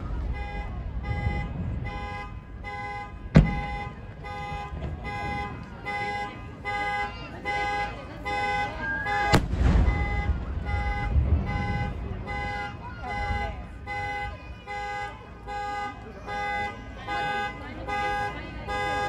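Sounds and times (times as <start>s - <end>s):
firework rumble and crackle: 0.0s - 19.0s
firework shells bursting: 9.3s - 11.0s.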